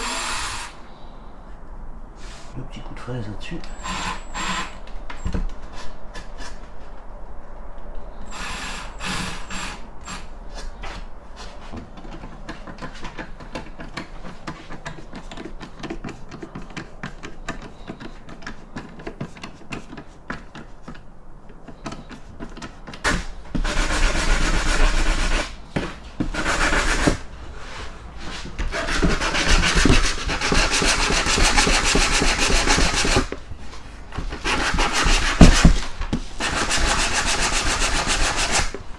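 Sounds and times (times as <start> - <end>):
cordless drill whining: 0.0 - 0.8, 3.7 - 4.8
wood and tool knocking: 11.8 - 27.2, 28.5 - 33.4, 34.1 - 38.8.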